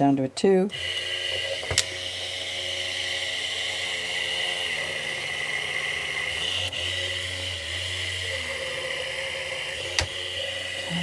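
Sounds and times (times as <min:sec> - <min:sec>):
electric sharpener motor whine: 0:00.7 - 0:11.0.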